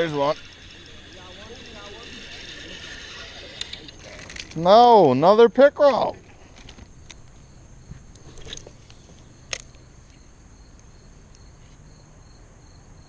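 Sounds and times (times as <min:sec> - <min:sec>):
fishing reel clicks: 0:00.0 - 0:04.6
crickets chirping: 0:00.0 - 0:13.0.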